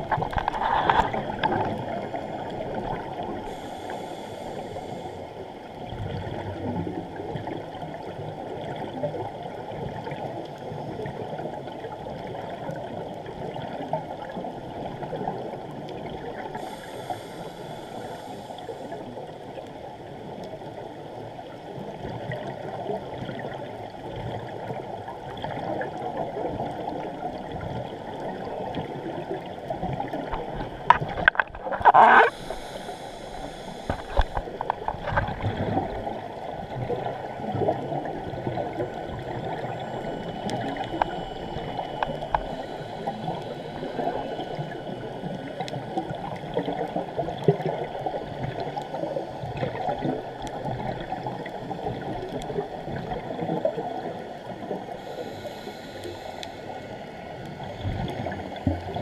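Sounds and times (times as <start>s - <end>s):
underwater bubbling breaths: 0.0s - 6.4s, 15.0s - 19.4s, 26.7s - 59.0s
regulator hisses: 3.4s - 5.4s, 16.5s - 19.0s, 32.0s - 34.7s, 39.4s - 45.4s, 55.0s - 57.2s.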